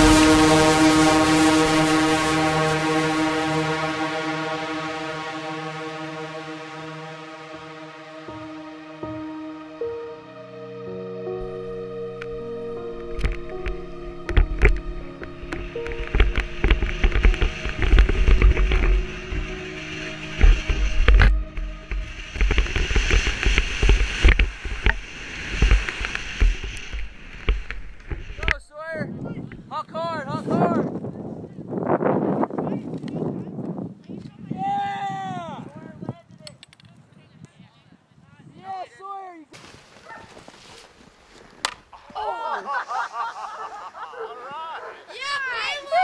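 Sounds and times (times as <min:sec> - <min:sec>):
wind buffeting microphone: 0:13.2 - 0:38.8
skis hissing through snow: 0:15.7 - 0:28.5, 0:39.6 - 0:41.6, 0:42.6 - 0:44.0
skis knocking over bumps: 0:15.9 - 0:19.1, 0:20.4 - 0:28.5
people whooping and hollering: 0:42.1 - 0:42.7.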